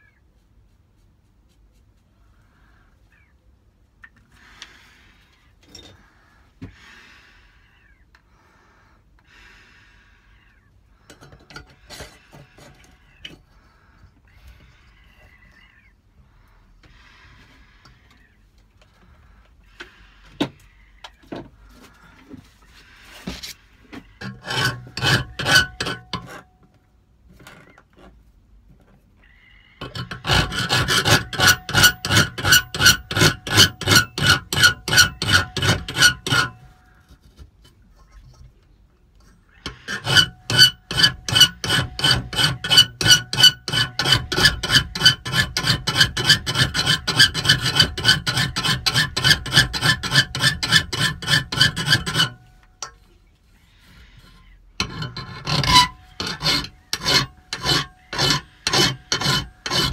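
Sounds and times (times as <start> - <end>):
hand file stroking metal tube: 21.8 - 26.5, 29.8 - 36.8, 39.2 - 53.1, 53.7 - 59.9.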